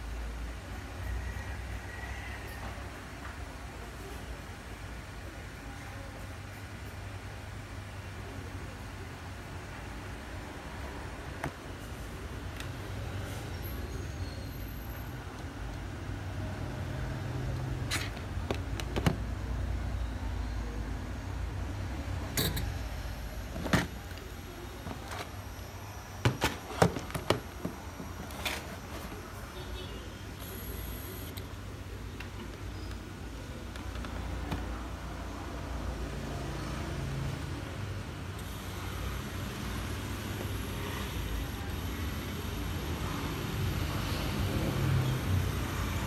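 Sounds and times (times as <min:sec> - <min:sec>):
electric actuator humming: 0:07.5 - 0:37.3, 0:38.2 - 0:46.0
motor running with low hum: 0:29.8 - 0:31.4.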